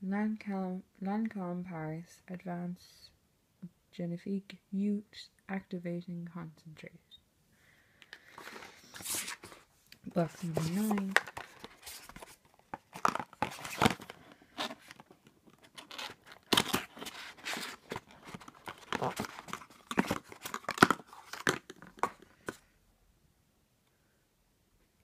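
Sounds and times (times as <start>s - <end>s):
scraping and tearing card: 8.4s - 9.6s, 10.4s - 22.2s
cardboard box being opened: 10.3s - 22.2s.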